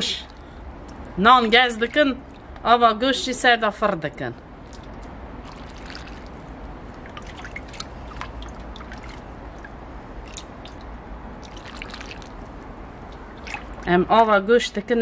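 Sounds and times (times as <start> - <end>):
broth ladled and dripping: 0.0 - 2.7, 4.5 - 14.4
steady low hum: 0.0 - 15.0
wet splashes: 4.5 - 14.4.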